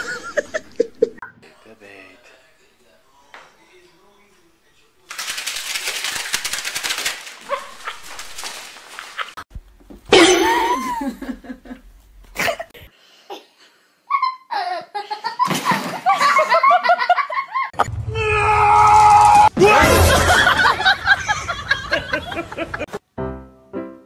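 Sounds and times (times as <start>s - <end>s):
people laughing: 0.0s - 1.2s, 10.3s - 11.9s, 14.1s - 17.8s, 19.6s - 23.0s.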